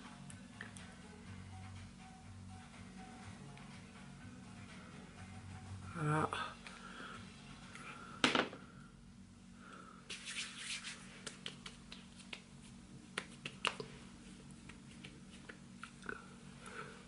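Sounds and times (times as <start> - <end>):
hands patting skin: 10.1 - 16.0.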